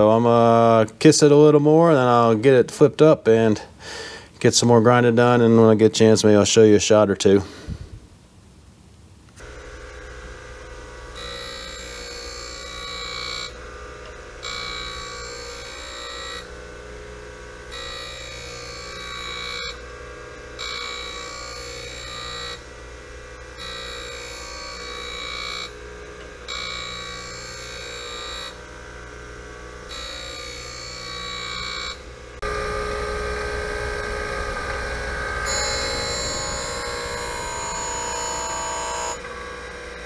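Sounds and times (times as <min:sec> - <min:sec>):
surface grinder whining grind: 0:09.4 - 0:40.0.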